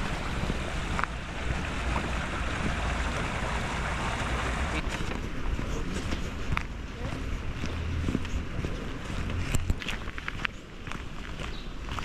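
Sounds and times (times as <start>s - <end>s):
water rushing in stone channel: 0.0s - 6.0s
wind rumble on microphone: 0.0s - 12.0s.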